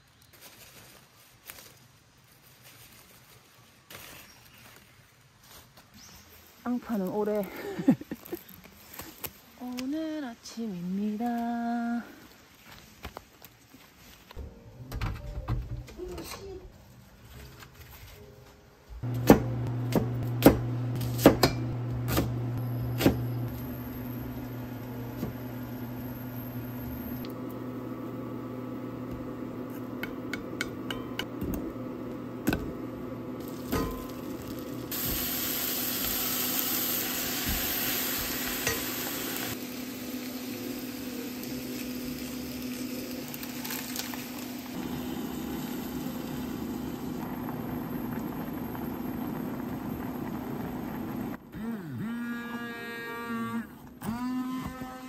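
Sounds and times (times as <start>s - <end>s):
food sizzling in a pot: 32.6s - 51.4s.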